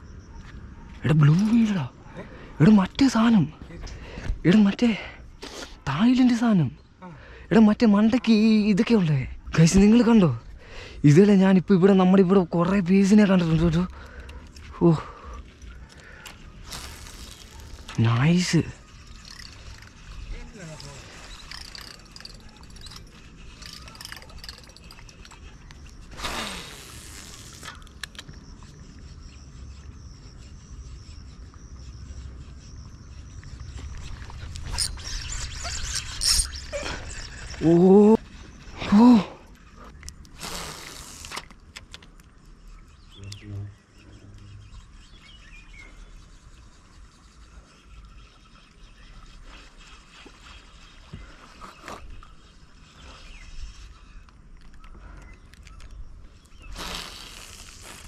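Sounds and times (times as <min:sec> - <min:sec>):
high buzz of insects: 0:00.0 - 0:58.0
fishing line whooshing off reel: 0:16.3 - 0:18.0, 0:18.8 - 0:27.9
sharp reel click: 0:18.9 - 0:28.3.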